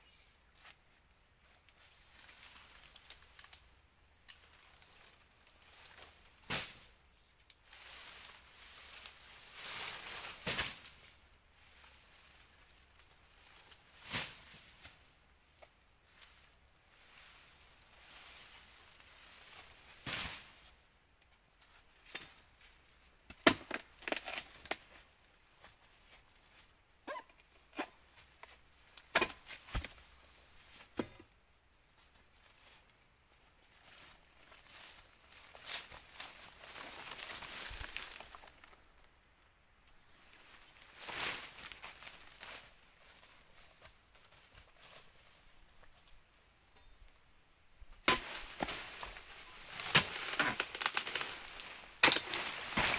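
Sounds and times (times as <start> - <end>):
blade chopping fronds: 29.0 - 30.1, 48.0 - 52.9.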